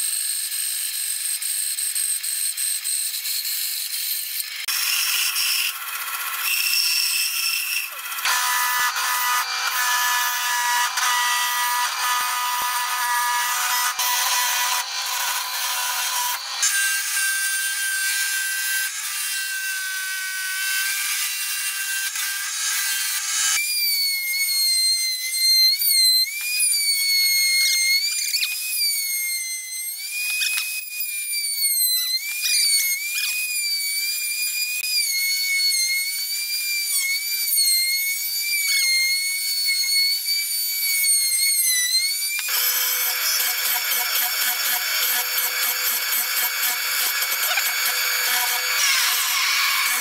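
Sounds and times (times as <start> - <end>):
router whining: 0.0 - 50.0
spindle sander running: 7.8 - 21.1, 42.5 - 50.0.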